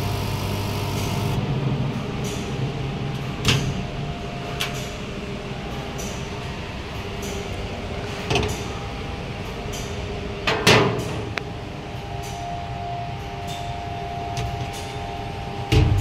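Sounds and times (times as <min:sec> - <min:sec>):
faint steady whine: 0:00.0 - 0:10.5
machine humming and rumbling: 0:00.0 - 0:16.0.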